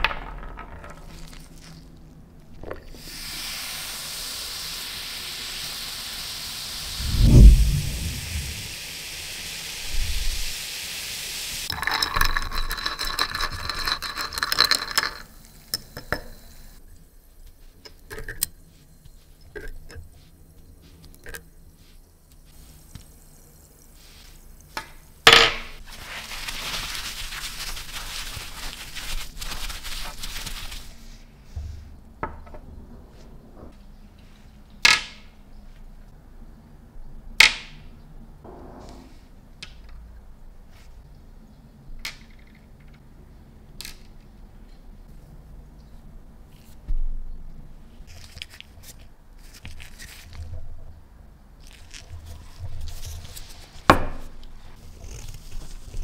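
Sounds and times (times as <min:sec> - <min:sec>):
steady hiss: 0:02.9 - 0:11.7, 0:20.1 - 0:32.0.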